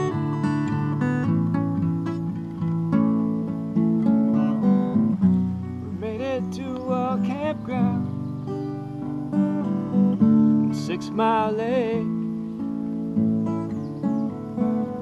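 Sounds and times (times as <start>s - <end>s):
acoustic guitar strumming: 0.0s - 15.0s
person singing: 5.9s - 8.3s, 10.6s - 12.2s.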